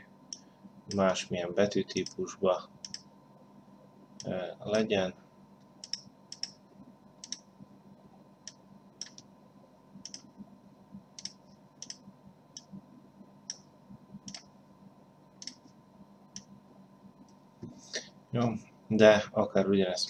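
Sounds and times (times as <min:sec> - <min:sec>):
faint steady hum: 0:00.0 - 0:20.0
computer mouse clicking: 0:02.8 - 0:03.1, 0:05.7 - 0:06.6, 0:07.2 - 0:07.5, 0:08.4 - 0:09.3, 0:10.0 - 0:10.5, 0:11.2 - 0:12.8, 0:13.5 - 0:14.5, 0:15.4 - 0:15.7.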